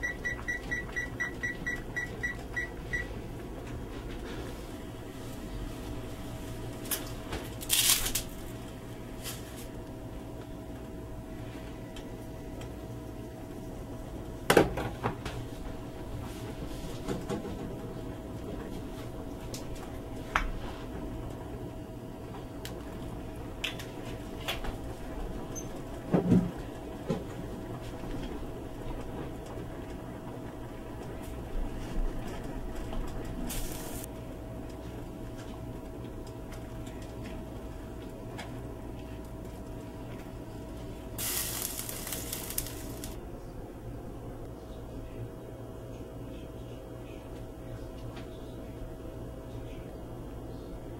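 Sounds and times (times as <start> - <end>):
steady low hum: 0.0 - 50.9
water boiling in a pot: 15.3 - 43.2.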